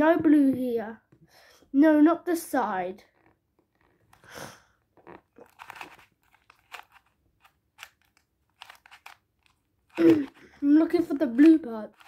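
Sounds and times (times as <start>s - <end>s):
puzzle cube clicking: 5.1s - 12.0s.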